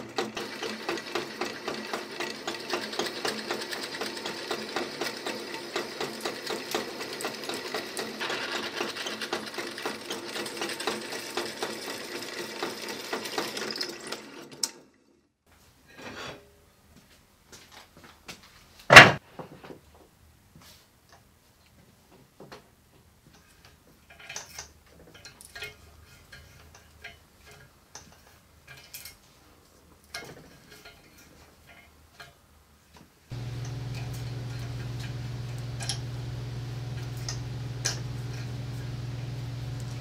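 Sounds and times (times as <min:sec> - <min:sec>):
steady low hum: 0:33.3 - 0:40.0.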